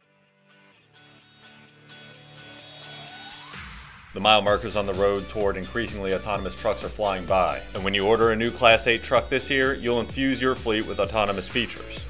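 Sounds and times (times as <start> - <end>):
sustained chord background music: 4.5 - 12.0.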